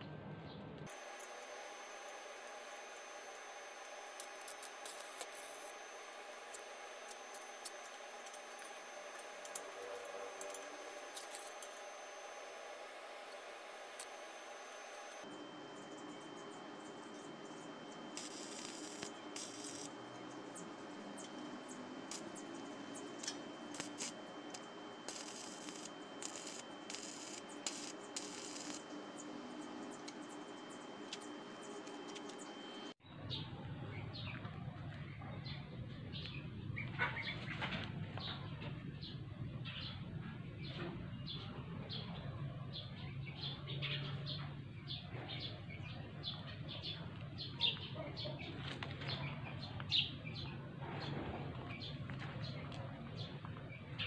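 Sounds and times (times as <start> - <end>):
welding arc crackling: 0.9 - 15.3, 16.9 - 33.0.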